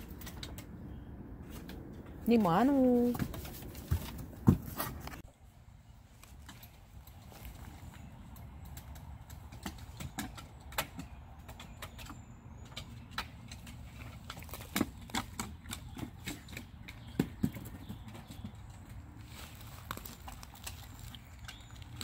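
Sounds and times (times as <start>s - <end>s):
dog claws clicking on wooden deck: 6.5s - 19.0s.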